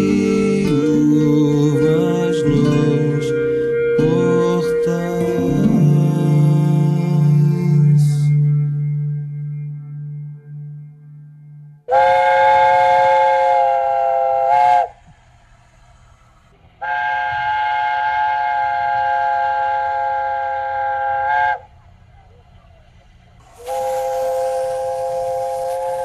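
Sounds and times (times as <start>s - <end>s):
steam locomotive chime whistle: 0.0s - 9.1s, 11.9s - 15.0s, 16.8s - 21.8s, 23.4s - 26.0s
low rumble of train: 0.0s - 26.0s
steam hissing: 11.9s - 21.6s, 22.9s - 26.0s.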